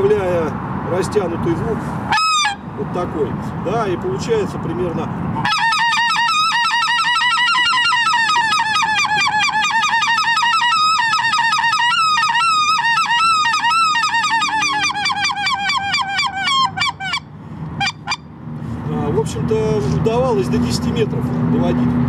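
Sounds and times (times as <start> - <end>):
goose call yodelling honks: 2.1 - 2.6, 5.4 - 18.2.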